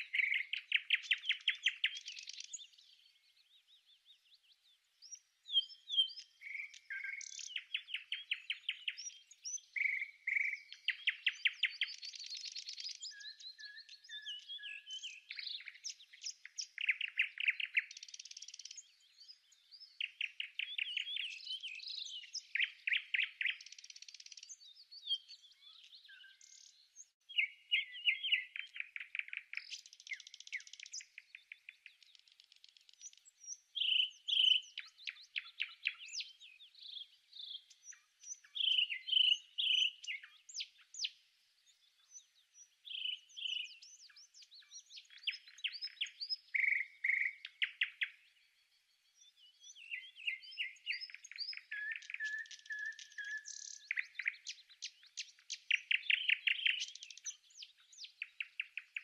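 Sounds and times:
songbirds trilling and chirping: 0.0 - 59.0.

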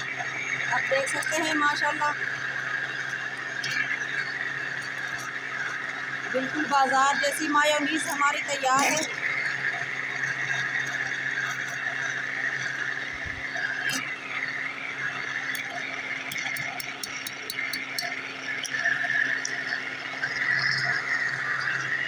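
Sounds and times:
electric blender running: 0.0 - 22.0.

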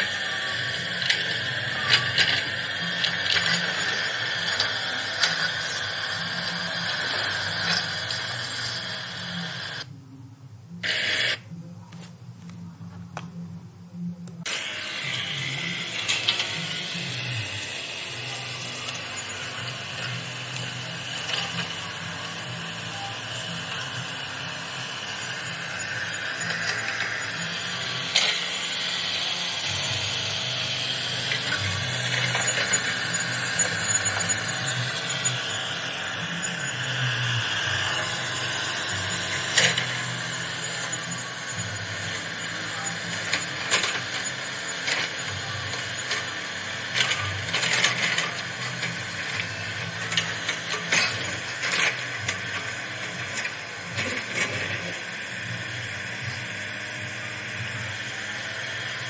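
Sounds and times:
toy excavator motor whirring: 0.0 - 9.9, 10.8 - 12.1, 14.4 - 59.0.

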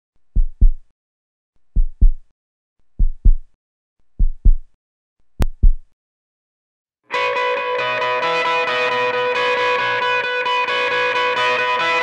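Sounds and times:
heartbeat thumps: 0.4 - 0.8, 1.8 - 2.2, 3.0 - 3.5, 4.2 - 4.7, 5.4 - 5.9.

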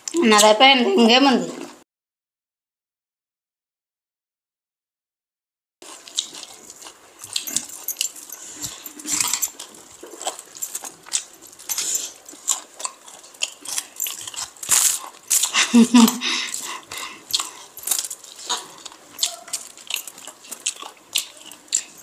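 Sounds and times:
wet chewing: 5.8 - 22.0.

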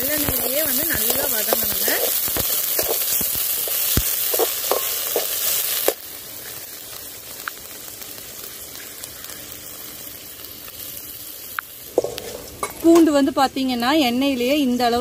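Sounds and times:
garlic sizzling in hot oil: 0.0 - 15.0
metal spoon clinking against pan: 2.8 - 5.4.

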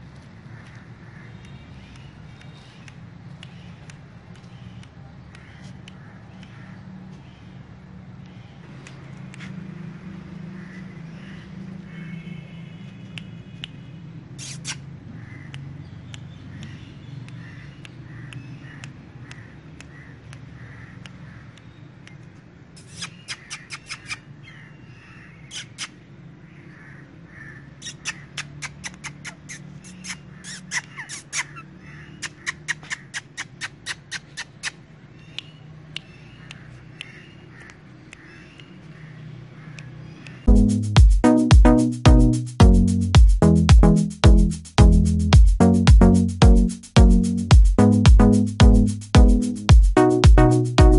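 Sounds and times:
parakeet squawking: 22.8 - 24.6, 25.4 - 26.0, 27.4 - 34.9.

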